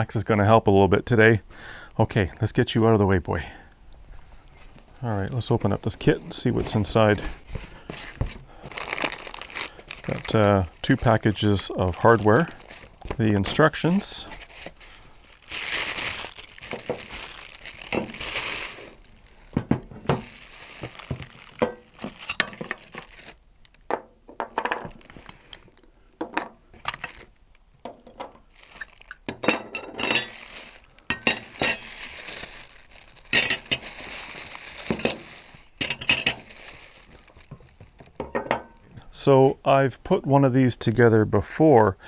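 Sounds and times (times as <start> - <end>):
plastic wrapping crinkling: 4.4 - 23.8, 24.5 - 25.9, 26.7 - 38.9
metal parts clinking and knocking: 29.3 - 30.4.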